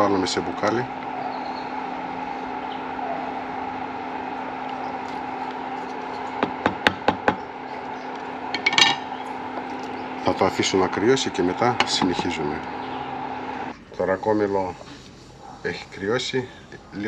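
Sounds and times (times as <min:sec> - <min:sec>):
steady background hum: 0:00.0 - 0:17.0
sharp knocks: 0:06.4 - 0:07.4
pots and utensils clattering: 0:08.6 - 0:09.1.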